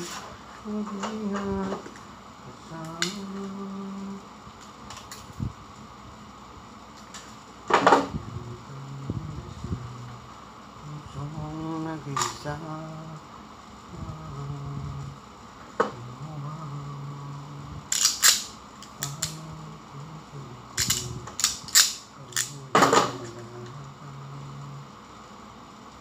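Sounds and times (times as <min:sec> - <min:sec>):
person humming low notes: 0:00.0 - 0:04.3, 0:07.7 - 0:13.3, 0:13.9 - 0:15.2, 0:15.8 - 0:18.0, 0:18.9 - 0:25.0
sharp plastic clicks and snaps: 0:17.9 - 0:19.5, 0:20.8 - 0:23.3.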